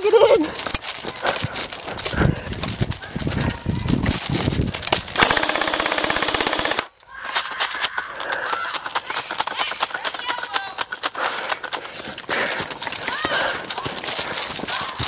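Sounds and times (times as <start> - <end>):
airsoft rifle full-auto burst: 4.9 - 6.9.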